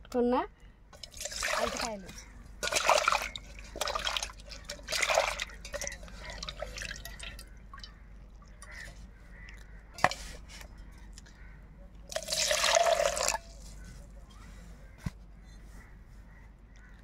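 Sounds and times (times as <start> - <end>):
water poured into a pot: 1.0 - 9.0, 12.1 - 13.7
water splashing in a metal pot: 1.0 - 9.1, 9.9 - 10.9, 12.1 - 13.8
water dripping: 1.0 - 11.4, 12.0 - 13.8.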